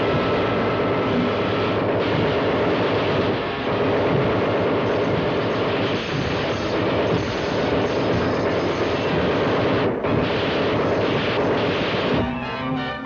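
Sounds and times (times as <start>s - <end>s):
loud steady rushing engine: 0.0s - 10.1s
orchestral music: 12.2s - 13.0s.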